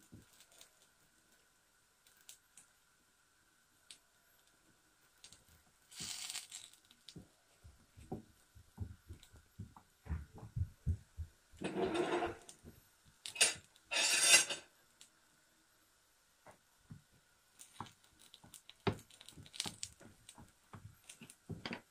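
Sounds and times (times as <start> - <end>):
wooden spatula tapping bread: 7.1 - 11.0, 17.8 - 21.9
spatula scraping across pan: 11.6 - 12.5, 13.4 - 14.7.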